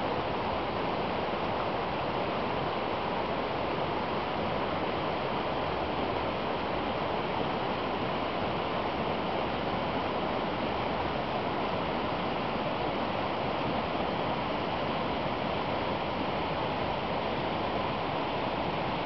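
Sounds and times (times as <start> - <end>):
brook rushing water: 0.0 - 19.0.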